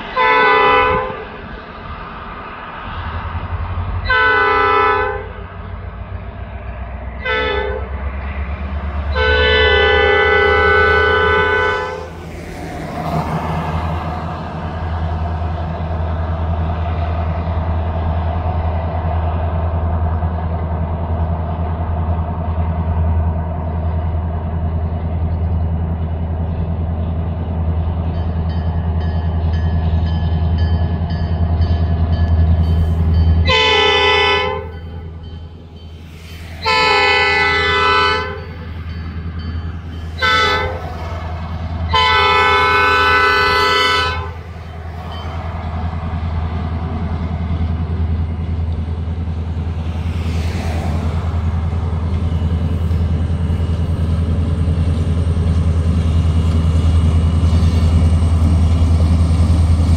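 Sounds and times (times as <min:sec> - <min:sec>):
locomotive air horn blasts: 0:00.1 - 0:01.3, 0:04.0 - 0:05.5, 0:07.2 - 0:08.0, 0:09.1 - 0:12.2, 0:33.4 - 0:35.2, 0:36.6 - 0:38.7, 0:40.2 - 0:41.0, 0:41.9 - 0:44.5.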